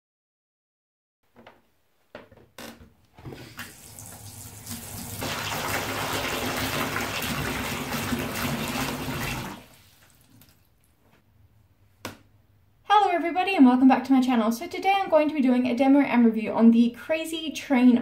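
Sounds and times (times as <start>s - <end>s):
bath tap running into bathtub: 3.3s - 10.8s.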